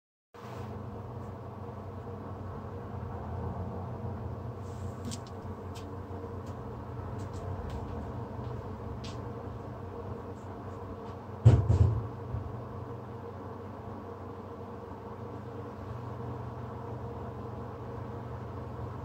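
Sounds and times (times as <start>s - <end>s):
low electrical hum: 0.4s - 19.0s
dull knock with rattle: 11.4s - 12.6s.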